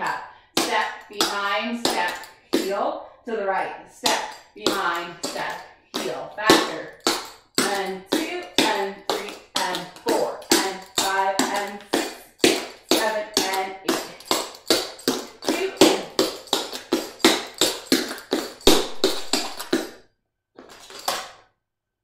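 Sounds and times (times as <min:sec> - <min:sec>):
tap shoes striking wood floor: 0:04.0 - 0:20.0.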